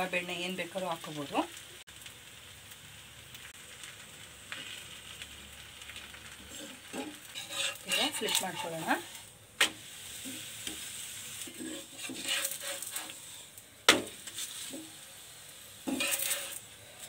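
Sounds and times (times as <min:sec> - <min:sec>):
flatbread sizzling on a pan: 0:00.0 - 0:17.0
steel spatula scraping: 0:06.4 - 0:13.6, 0:14.2 - 0:15.0, 0:15.8 - 0:17.0.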